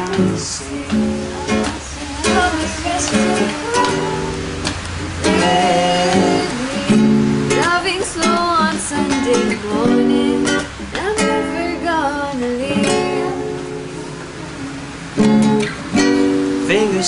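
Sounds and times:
person singing: 0:00.0 - 0:04.6, 0:05.2 - 0:13.7, 0:16.6 - 0:17.0
acoustic guitar strummed chords: 0:00.0 - 0:17.0.

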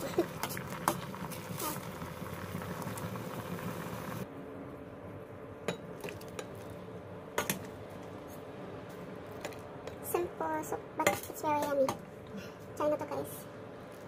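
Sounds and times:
soup simmering: 0:00.0 - 0:04.2.

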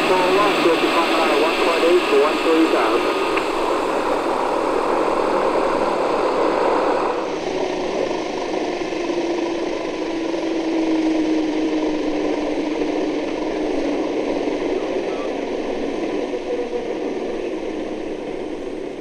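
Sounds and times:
hiss: 0:00.0 - 0:08.4
model helicopter turbine whine: 0:00.0 - 0:19.0.

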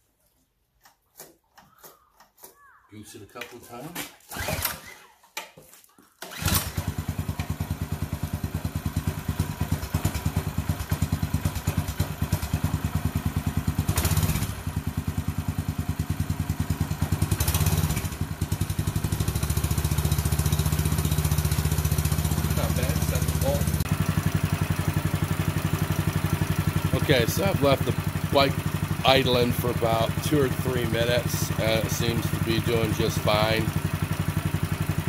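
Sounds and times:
pull-start cord: 0:04.0 - 0:05.5, 0:06.2 - 0:07.6
small engine running and revving: 0:06.3 - 0:35.0.

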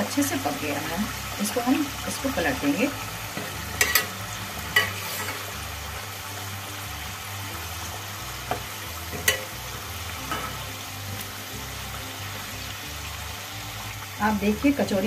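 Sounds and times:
food deep-frying in oil: 0:00.0 - 0:15.0
metal skimmer clinking on pan: 0:03.8 - 0:04.1, 0:09.1 - 0:09.5.

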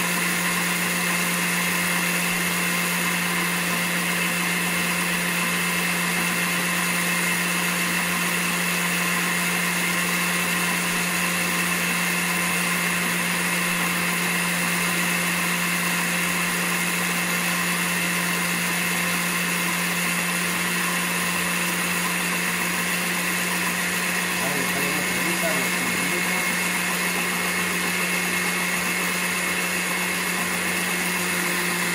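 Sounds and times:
blender humming: 0:00.0 - 0:31.9.

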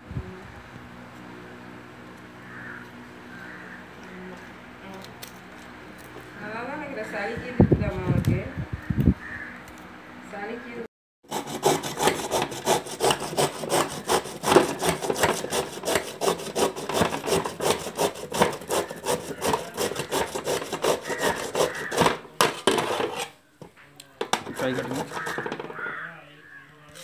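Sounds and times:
beetroot grated on metal grater: 0:11.3 - 0:23.3, 0:24.3 - 0:25.7.

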